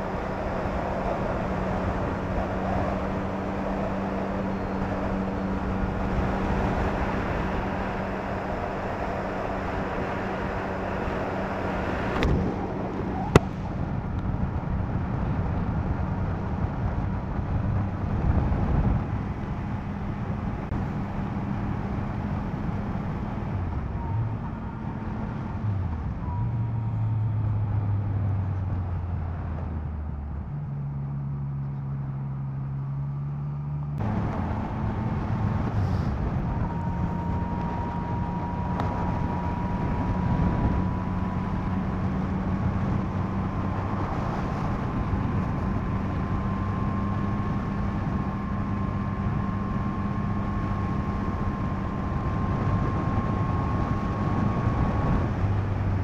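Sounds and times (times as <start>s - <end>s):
motorcycle engine cruising: 0.0s - 56.0s
wind noise on microphone: 10.6s - 30.4s, 34.0s - 56.0s.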